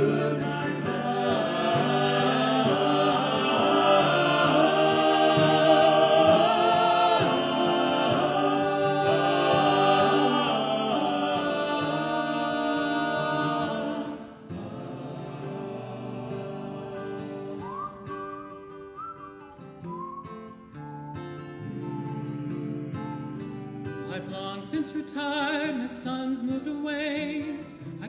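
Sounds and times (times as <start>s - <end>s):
male ensemble singing harmony: 0.0s - 18.0s.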